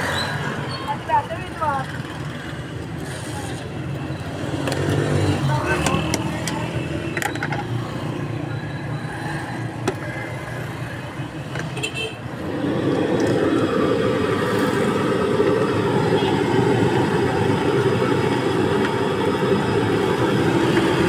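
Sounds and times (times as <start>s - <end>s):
traffic rumble: 0.0s - 21.0s
voices: 0.8s - 2.0s, 5.1s - 6.9s.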